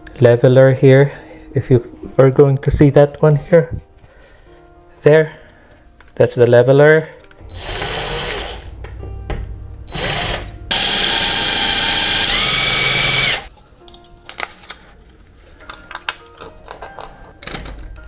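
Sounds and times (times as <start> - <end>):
cordless drill whining: 7.5 - 8.7, 9.9 - 13.5.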